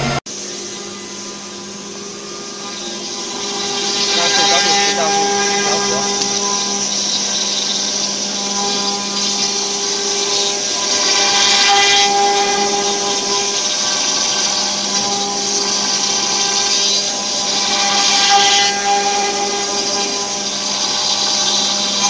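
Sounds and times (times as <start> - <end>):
router cutting wood: 0.0 - 22.0
router spindle whine: 0.0 - 22.0.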